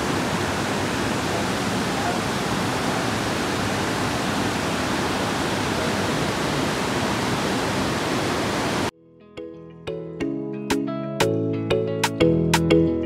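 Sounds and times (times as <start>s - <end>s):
river rushing over rocks: 0.0s - 8.9s.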